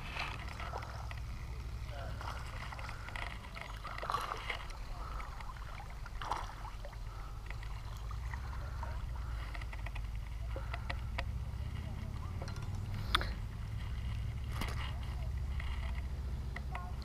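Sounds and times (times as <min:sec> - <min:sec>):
river water running: 0:00.0 - 0:17.0
small splash: 0:03.8 - 0:09.0
low rumble: 0:06.9 - 0:16.7.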